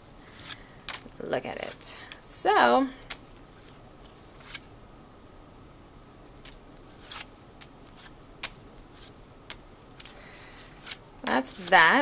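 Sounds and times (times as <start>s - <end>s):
cards clicking: 3.0s - 3.8s, 6.4s - 11.8s
papery swishes of cards: 3.1s - 4.6s, 6.4s - 11.9s.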